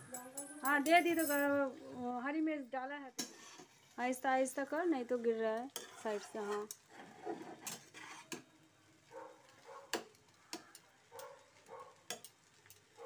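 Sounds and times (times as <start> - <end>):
spatula scraping a frying pan: 3.2 - 4.0, 4.9 - 8.6.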